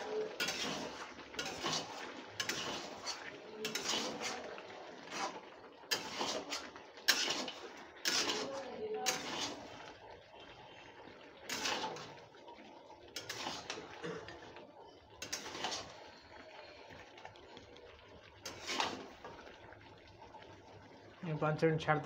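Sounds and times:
metal spatula scraping pan: 0.0 - 10.0, 11.4 - 12.3, 13.1 - 14.0, 15.2 - 16.1, 18.4 - 19.4.

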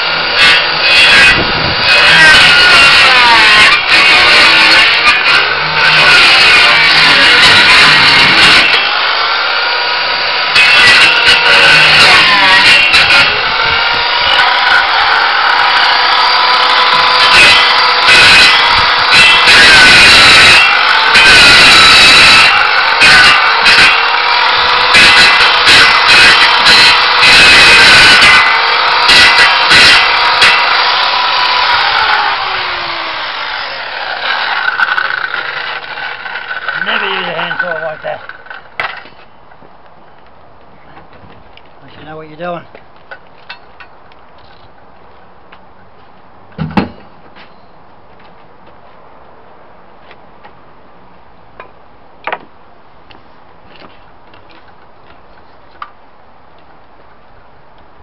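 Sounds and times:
saw blade whine coasting down: 0.0 - 38.6
circular saw cutting timber: 0.0 - 39.2.

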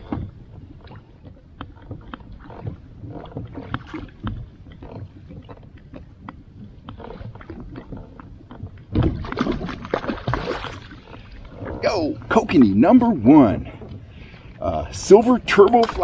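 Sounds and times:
fish splashing: 8.9 - 11.5.

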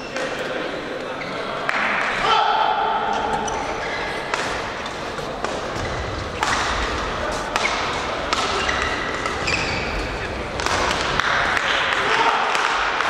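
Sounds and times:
shoes squeaking on court: 3.1 - 11.1
racket striking shuttlecock: 4.3 - 4.8, 5.4 - 11.8.

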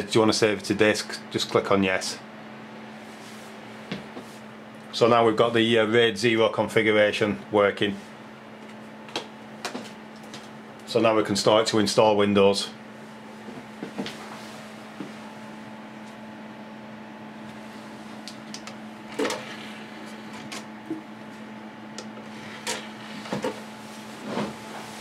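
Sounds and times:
computer humming: 0.0 - 25.0.

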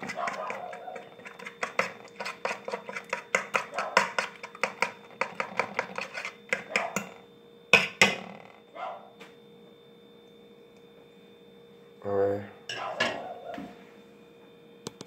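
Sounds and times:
fork beating egg on plate: 0.0 - 7.2.

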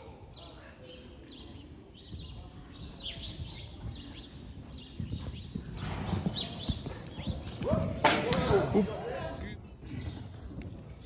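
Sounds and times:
horse hoofbeats on sand: 2.1 - 8.3.

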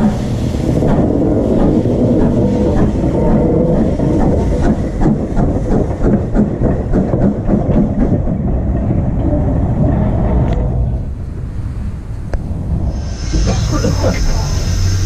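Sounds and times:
exhaust beats and wheel clanks: 0.0 - 11.0
steam locomotive rumble: 0.0 - 15.0.

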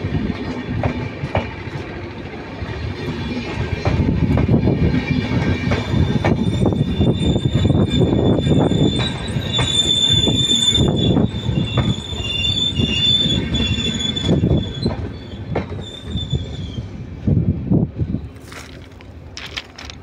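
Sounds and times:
train rumble: 0.0 - 20.0
high wheel squeal: 5.9 - 17.0
wheel clatter over rail joints: 18.4 - 20.0.

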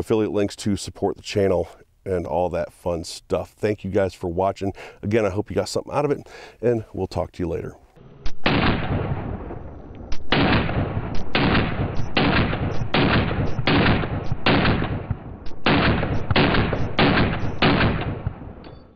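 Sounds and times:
rifle shots with echo: 8.3 - 9.5, 10.1 - 18.9.

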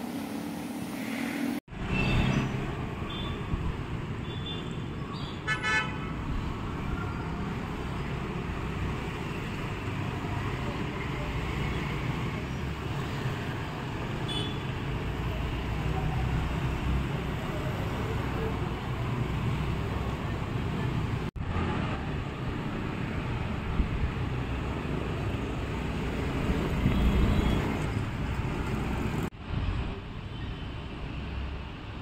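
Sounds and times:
street traffic rumble: 0.0 - 32.0
vehicle horn toot: 5.5 - 6.1, 14.3 - 14.7.

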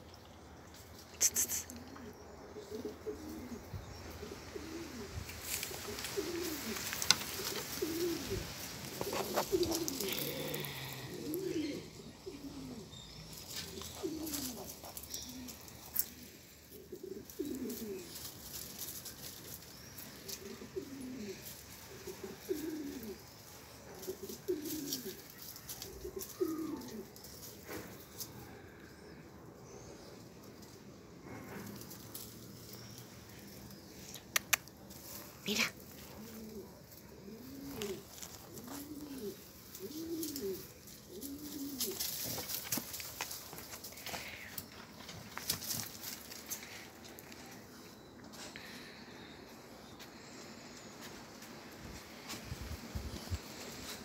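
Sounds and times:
pigeon cooing: 1.2 - 54.0
dry debris crackling and rustling: 4.6 - 28.5, 34.7 - 49.0.

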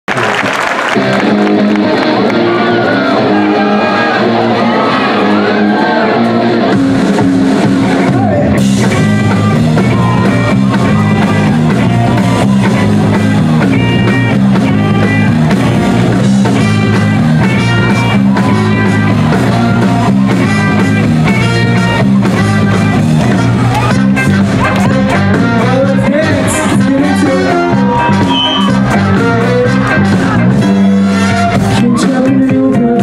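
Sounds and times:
rock band playing live: 0.1 - 33.0
drum kit with cymbals: 6.7 - 27.3.

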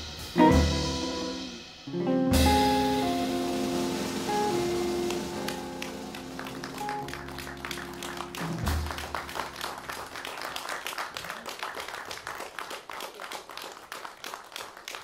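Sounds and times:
audience applauding: 4.8 - 15.0.

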